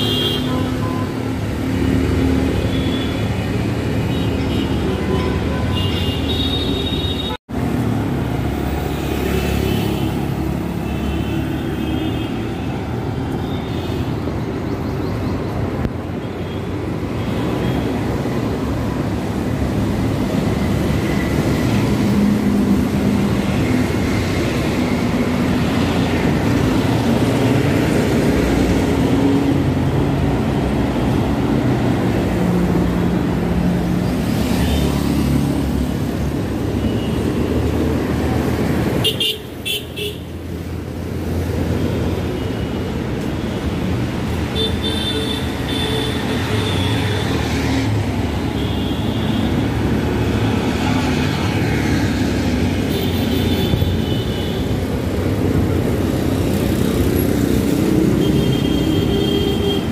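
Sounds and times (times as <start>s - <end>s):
cars passing: 0.0s - 59.9s
tyre noise on road: 0.0s - 59.9s
motorcycles passing: 17.8s - 59.9s.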